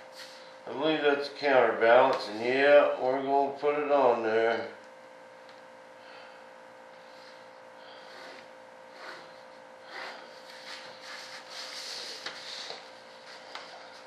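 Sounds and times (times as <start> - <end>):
faint hum: 0.0 - 14.0
pencil scraping on paper: 8.0 - 12.8.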